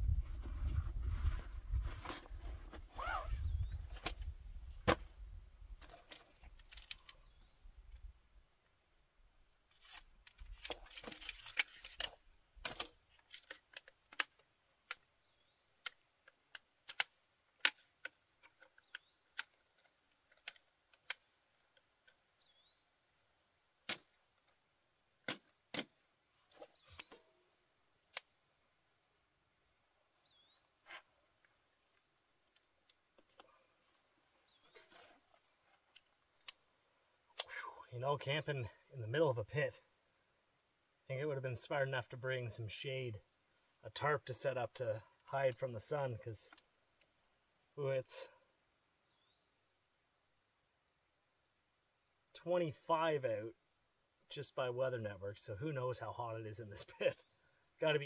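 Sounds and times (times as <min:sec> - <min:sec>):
tent poles clicking into frame: 0:00.4 - 0:05.1, 0:05.8 - 0:07.4, 0:09.7 - 0:15.1, 0:15.8 - 0:21.2, 0:23.8 - 0:24.2, 0:25.2 - 0:27.4, 0:37.3 - 0:37.6.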